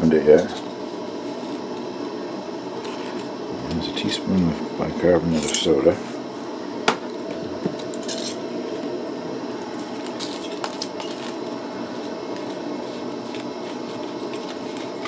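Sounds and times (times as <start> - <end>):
low room hum: 0.0 - 15.0
scratchy rustles: 11.1 - 15.0.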